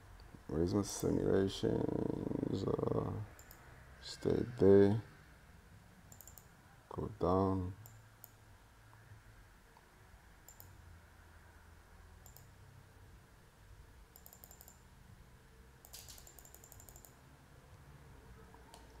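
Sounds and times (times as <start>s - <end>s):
computer mouse clicks: 3.4s - 3.7s, 6.1s - 6.5s, 7.8s - 8.4s, 9.8s - 10.8s, 12.2s - 12.5s, 14.1s - 14.8s, 15.8s - 17.2s, 18.5s - 19.0s.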